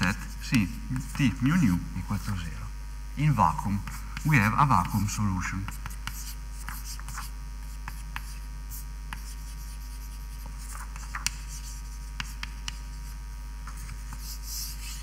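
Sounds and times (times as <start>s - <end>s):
low electrical hum: 0.0s - 15.0s
pen tapping and scratching: 3.8s - 8.4s, 9.1s - 13.1s.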